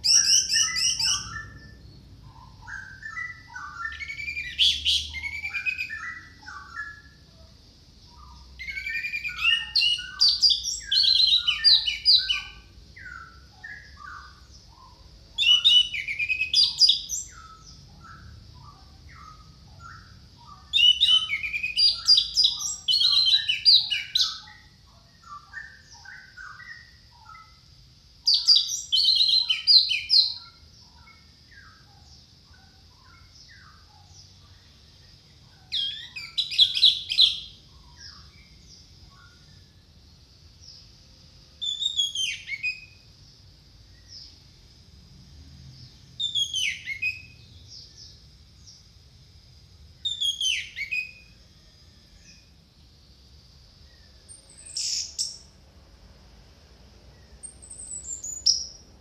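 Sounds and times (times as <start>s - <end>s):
thrush whistled song: 0.0s - 7.2s, 8.2s - 27.6s, 28.2s - 31.9s, 41.6s - 43.0s, 46.2s - 47.5s, 50.0s - 51.4s
soft bird chirps: 0.0s - 44.6s, 45.6s - 49.0s, 50.0s - 52.9s, 53.8s - 55.6s, 57.0s - 59.0s.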